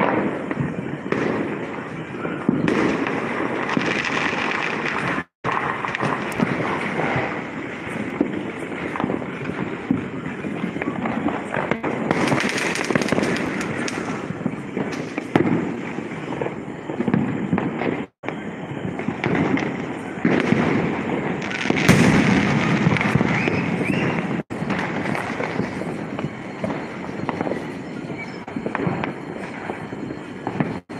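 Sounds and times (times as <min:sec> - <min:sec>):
firecrackers crackling and banging: 0:00.0 - 0:30.9.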